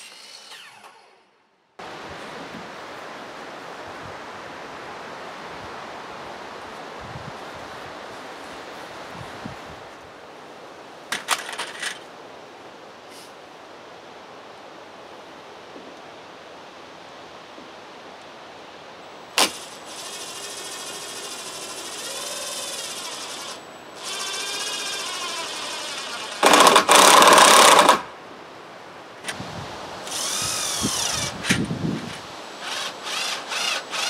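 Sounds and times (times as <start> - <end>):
cordless drill driving screws: 0.0 - 1.2, 19.4 - 28.0, 30.1 - 31.7, 32.6 - 34.0
low background noise: 0.0 - 34.0.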